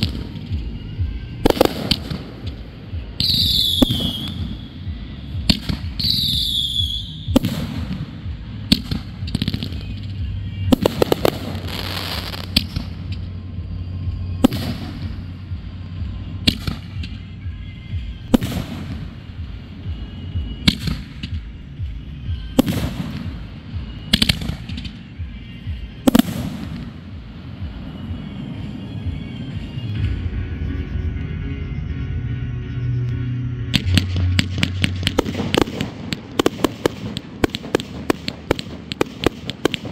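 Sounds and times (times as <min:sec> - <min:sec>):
firework bursts: 0:00.0 - 0:17.4, 0:33.7 - 0:39.9
firework pops: 0:01.4 - 0:02.6, 0:05.4 - 0:08.0, 0:08.7 - 0:13.3, 0:24.1 - 0:25.0
firework whistle falling in pitch: 0:03.2 - 0:04.9, 0:05.9 - 0:07.4.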